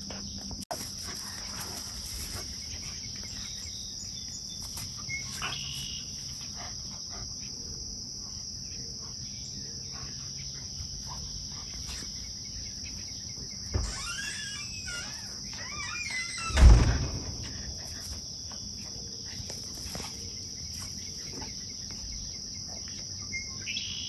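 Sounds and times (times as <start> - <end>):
crickets chirping: 0.0 - 24.0
short high squeals: 13.8 - 16.7
thump: 16.5 - 18.2.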